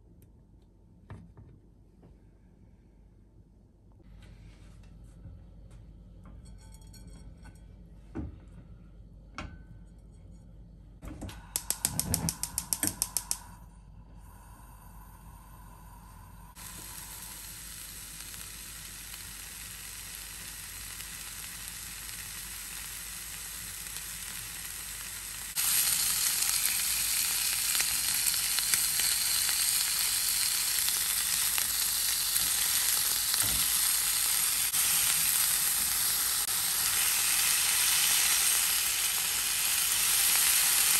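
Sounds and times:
gas igniter clicking: 11.5 - 13.5
skewers tapping in a pan: 11.6 - 13.4
meat sizzling in a pan: 16.5 - 40.9.

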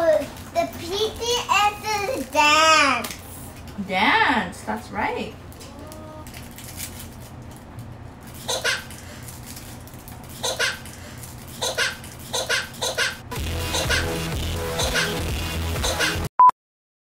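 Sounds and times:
loud music with heavy bass: 13.3 - 16.3.

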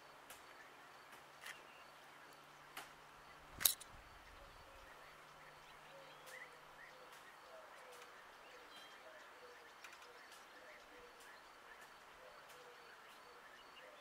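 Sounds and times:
distant birds calling: 0.0 - 14.0
sharp click: 3.6 - 4.0.

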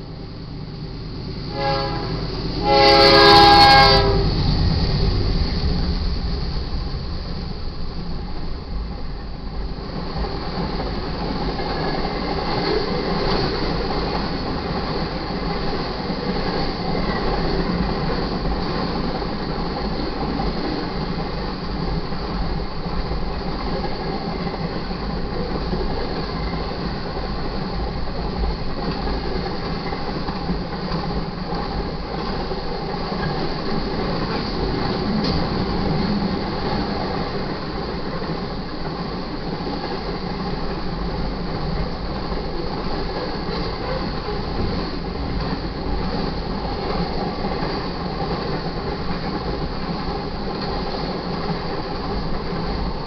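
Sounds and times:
locomotive engines rumbling: 0.0 - 53.0
train wheels clattering on rails: 1.4 - 53.0
locomotive horn blast: 1.5 - 4.4.

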